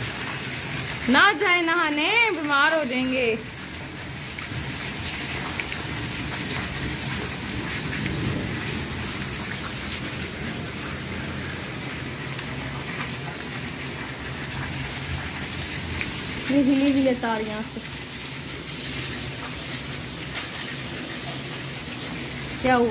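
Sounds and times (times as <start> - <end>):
heavy rain on concrete: 0.0 - 22.9.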